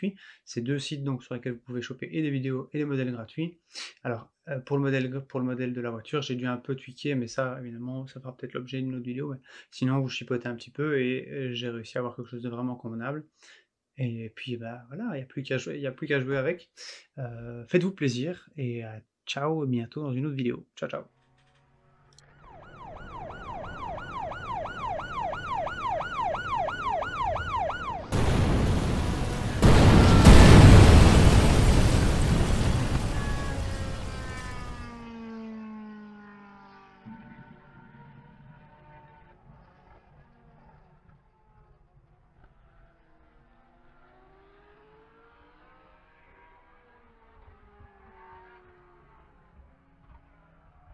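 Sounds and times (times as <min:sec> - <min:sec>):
alarm siren wailing: 0:22.2 - 0:36.2
loud rush of noise: 0:28.1 - 0:34.9.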